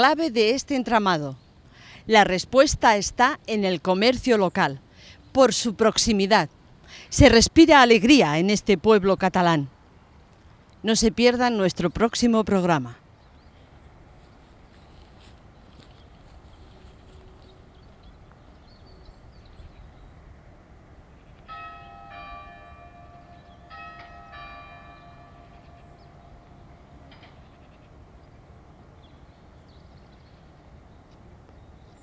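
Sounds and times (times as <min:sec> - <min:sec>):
low outdoor background noise: 0:00.0 - 0:32.0
church bell ringing: 0:21.5 - 0:28.1.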